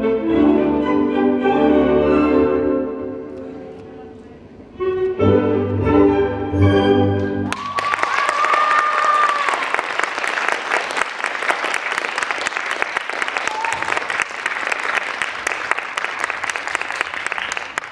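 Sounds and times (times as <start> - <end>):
audience applauding: 7.4 - 17.9.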